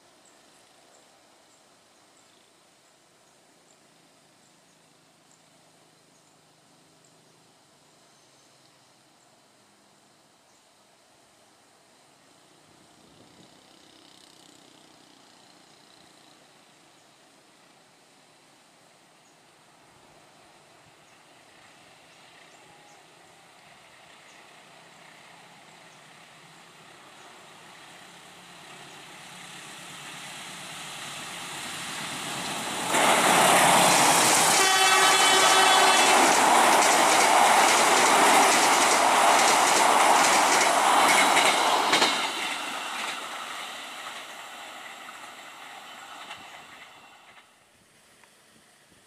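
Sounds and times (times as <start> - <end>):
diesel train passing: 19.6 - 47.7
carriages clacking over bridge rails: 27.1 - 47.5
train horn: 34.4 - 36.4.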